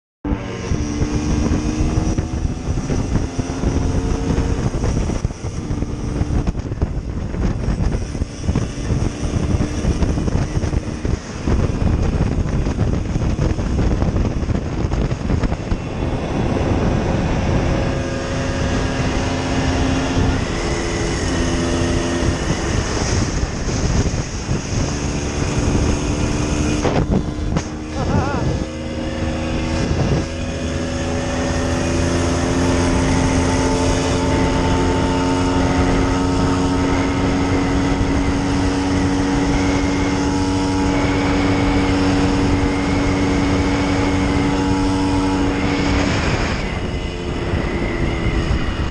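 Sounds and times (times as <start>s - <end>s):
wind rumble on microphone: 0.2s - 48.9s
two-stroke motorcycle engine running: 0.3s - 48.9s.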